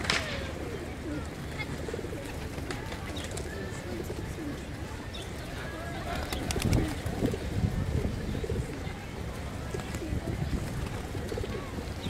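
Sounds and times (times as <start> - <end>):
pigeon wings flapping: 0.0 - 4.0, 5.7 - 7.5, 9.6 - 12.0
pigeons cooing: 0.0 - 12.0.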